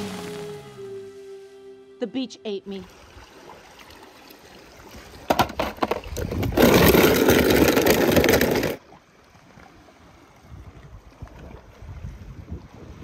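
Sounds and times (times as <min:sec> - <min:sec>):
loud crashing and crunching: 0:06.4 - 0:08.8.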